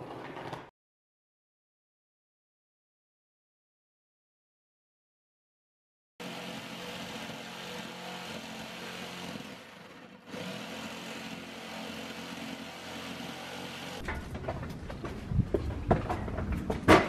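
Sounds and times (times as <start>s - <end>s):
jigsaw sawing through board: 6.2s - 14.0s.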